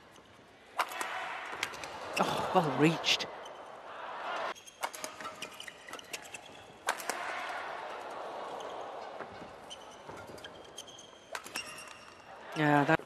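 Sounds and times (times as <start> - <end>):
crowd noise in large hall: 0.0 - 13.0
racket striking shuttlecock: 0.8 - 2.0, 4.7 - 8.0, 11.3 - 12.1
shoe squeaks on court: 9.6 - 12.2.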